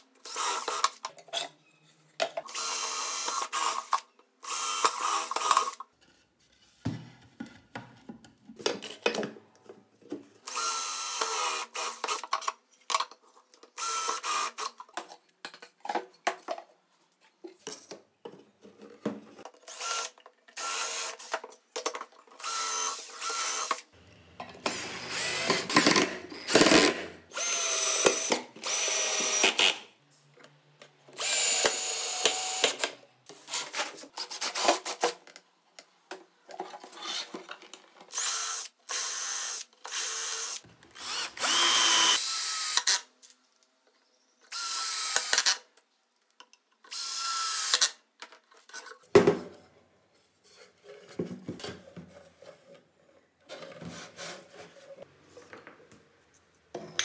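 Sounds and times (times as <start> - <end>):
power drill driving screws: 0.2 - 1.0, 2.5 - 5.8, 10.5 - 12.2, 13.8 - 14.7, 19.7 - 21.3, 22.4 - 23.8, 24.6 - 29.8, 31.2 - 32.9, 38.1 - 43.0, 44.5 - 45.6, 46.9 - 48.0.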